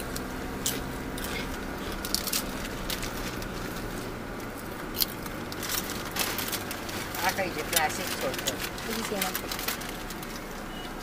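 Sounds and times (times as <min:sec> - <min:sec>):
chips crunching: 0:00.1 - 0:10.5
chip packets crinkling: 0:00.2 - 0:10.7.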